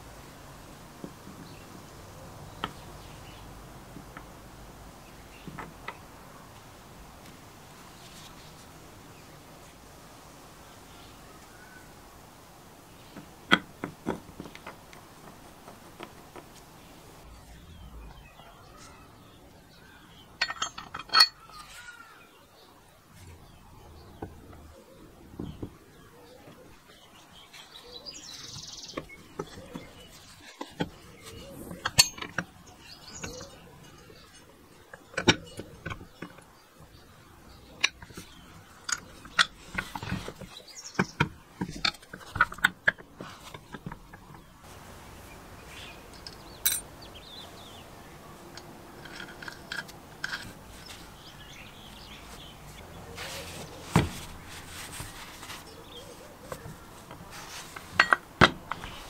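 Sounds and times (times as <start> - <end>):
metal parts clinking and knocking: 20.3 - 22.0, 28.9 - 36.5, 37.8 - 44.3, 46.1 - 46.9, 48.5 - 51.3, 56.5 - 59.0.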